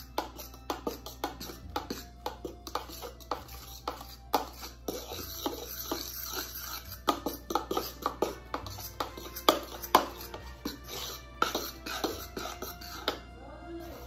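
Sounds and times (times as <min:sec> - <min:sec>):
background music: 0:00.0 - 0:14.0
fork scraping a pan: 0:00.0 - 0:14.0.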